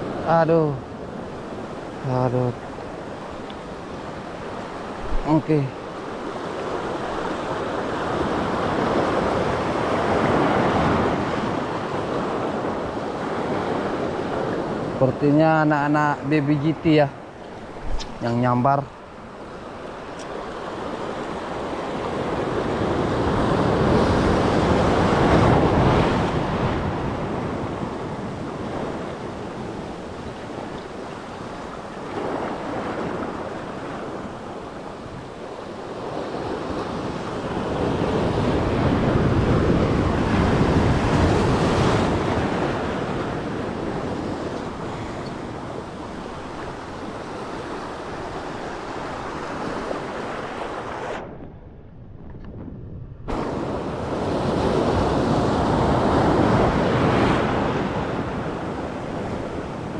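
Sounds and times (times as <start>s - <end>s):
surf washing over rocks: 0.0s - 51.4s, 53.3s - 59.9s
wind buffeting microphone: 17.2s - 59.9s.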